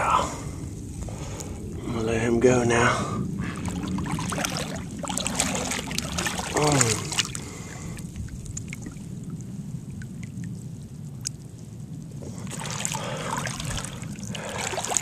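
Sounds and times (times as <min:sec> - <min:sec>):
low rumble: 0:00.0 - 0:15.0
water splashing and trickling: 0:03.4 - 0:15.0.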